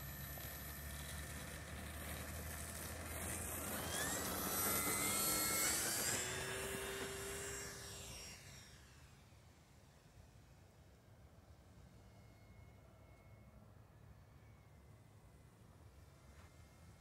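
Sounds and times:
model plane motor whining: 0:00.0 - 0:09.6.

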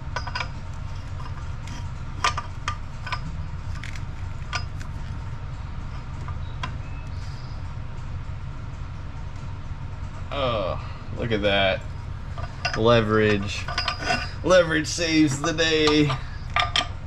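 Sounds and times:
steady low hum: 0:00.0 - 0:17.0
wrench clinking on metal: 0:00.1 - 0:05.2, 0:12.3 - 0:17.0.

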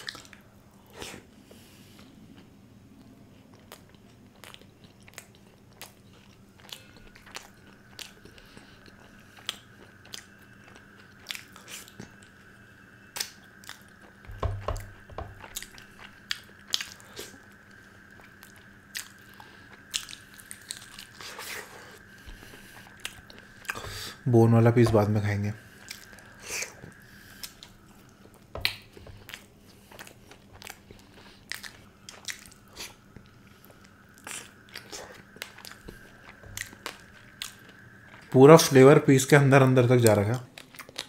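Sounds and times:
faint steady hum: 0:00.0 - 0:41.0
person chewing and biting: 0:03.5 - 0:12.4, 0:13.2 - 0:38.3, 0:40.5 - 0:41.0
low thumps: 0:14.3 - 0:15.5.

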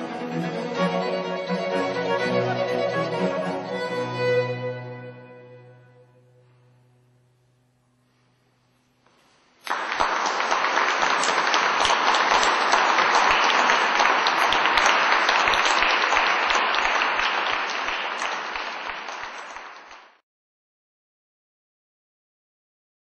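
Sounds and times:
audience applauding: 0:09.6 - 0:20.2.

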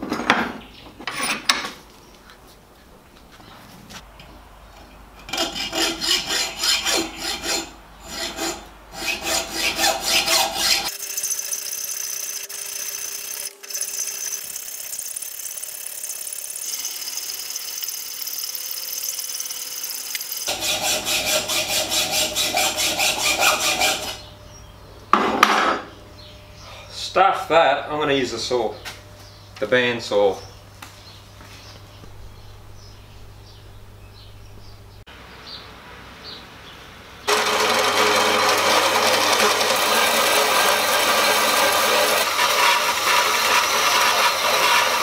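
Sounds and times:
file rasping on steel: 0:05.3 - 0:11.0, 0:20.4 - 0:24.3, 0:37.3 - 0:45.0.

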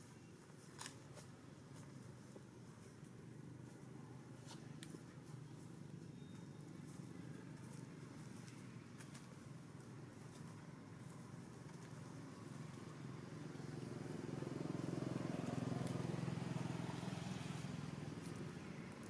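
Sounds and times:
vehicle engine passing by: 0:12.0 - 0:19.0.

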